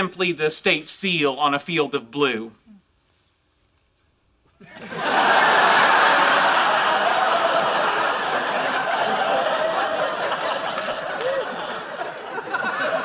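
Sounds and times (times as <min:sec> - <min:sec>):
studio audience laughing: 0:04.6 - 0:13.0.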